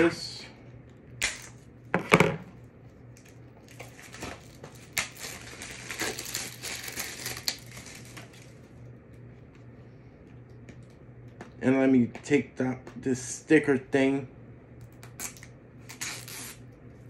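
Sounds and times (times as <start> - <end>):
plastic wrapping crinkling: 3.0 - 8.8.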